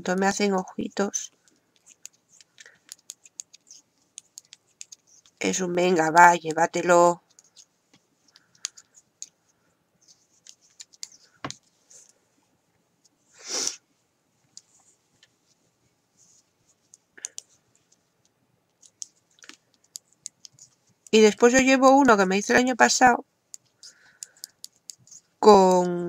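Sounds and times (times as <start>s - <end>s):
metal knitting needles clicking: 1.4s - 5.5s.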